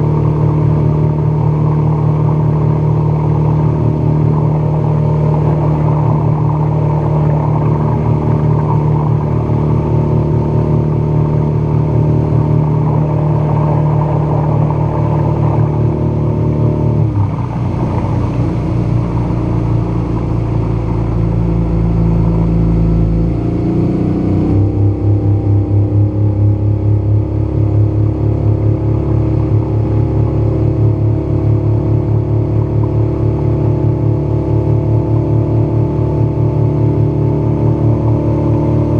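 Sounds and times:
outboard motor running: 0.0s - 38.9s
rushing water from wake: 0.0s - 38.9s.

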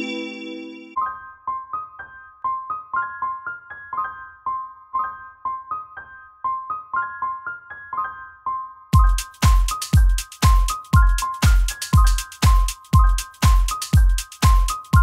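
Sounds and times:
held keyboard chord: 0.0s - 1.0s
light keyboard melody: 0.0s - 15.0s.

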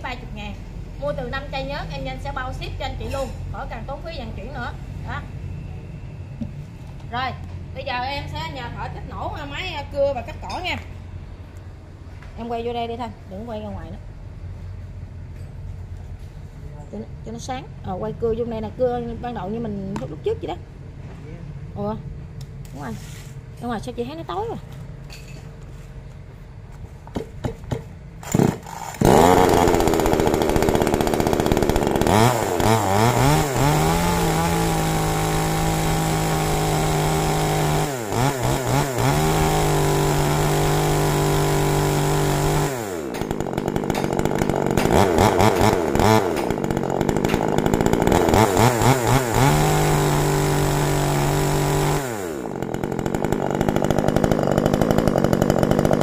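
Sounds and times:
chainsaw revving and idling: 28.2s - 56.0s.

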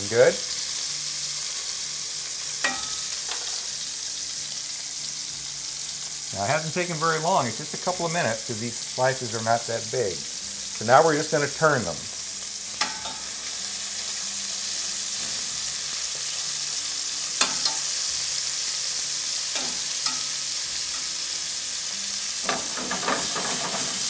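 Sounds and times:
meat sizzling in butter: 0.0s - 24.0s
metal fork clicking on pan: 2.6s - 3.5s, 12.8s - 13.3s, 17.4s - 17.9s, 19.5s - 20.4s.

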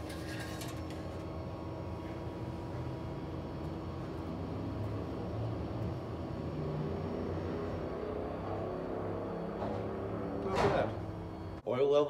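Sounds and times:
dipstick scraping rattle: 0.0s - 1.0s
steady low hum: 0.0s - 12.0s.

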